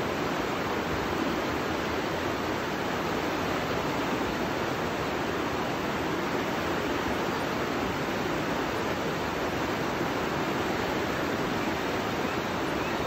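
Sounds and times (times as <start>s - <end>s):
whitewater roar of rapids: 0.0s - 13.0s.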